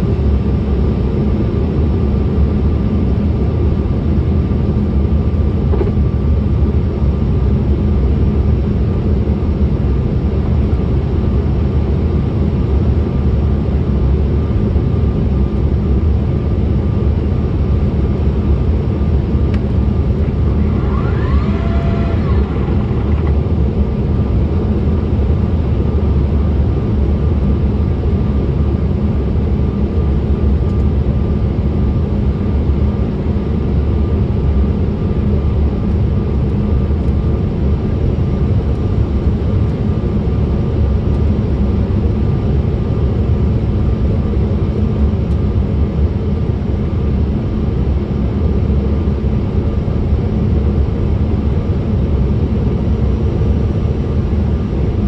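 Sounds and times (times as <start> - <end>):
jet airliner cabin drone: 0.0 - 55.0
faint steady whine: 17.0 - 26.4.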